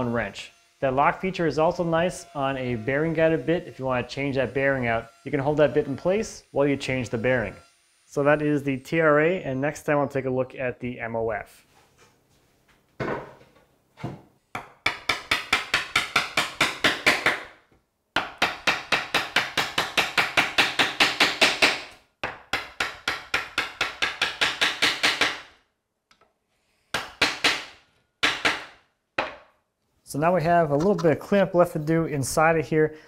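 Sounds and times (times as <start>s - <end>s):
chisel struck in rapid blows: 14.9s - 17.5s, 18.2s - 25.5s
board knocking on bench: 29.2s - 29.5s.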